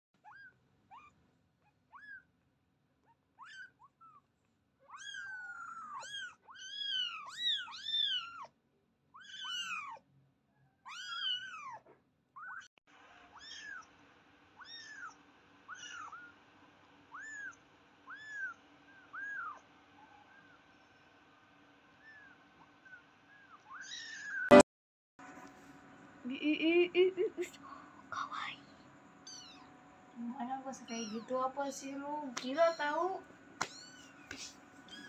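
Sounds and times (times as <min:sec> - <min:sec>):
kittens mewing: 0:04.8 - 0:08.5, 0:09.2 - 0:10.0, 0:10.9 - 0:12.7, 0:13.3 - 0:13.9, 0:14.6 - 0:16.4, 0:17.1 - 0:20.6, 0:30.8 - 0:31.4, 0:32.4 - 0:35.0.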